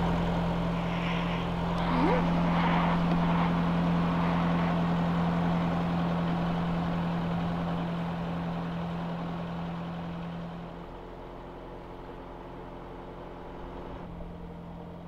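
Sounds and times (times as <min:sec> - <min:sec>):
boat engine droning: 0:00.0 - 0:12.0.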